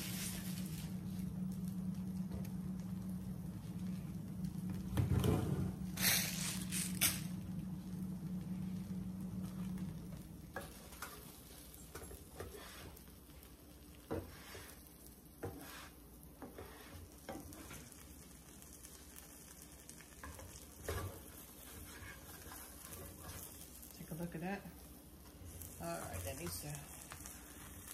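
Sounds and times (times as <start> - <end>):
low hum: 0.0 - 12.0
sandwich sizzling in a pan: 0.0 - 27.9
spatula scraping and knocking pan: 10.5 - 13.4, 14.0 - 14.8, 15.4 - 18.0, 20.1 - 23.9.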